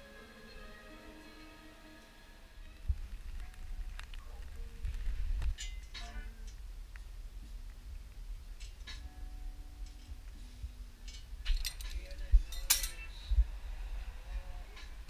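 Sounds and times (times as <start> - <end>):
metal tubing clinking and clanking: 5.5 - 6.2, 11.0 - 13.1.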